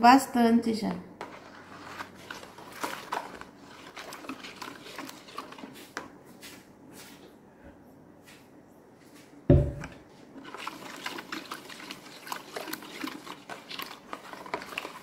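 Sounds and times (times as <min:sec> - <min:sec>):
spatula swishing soap in basin: 0:01.1 - 0:07.4, 0:10.0 - 0:15.0.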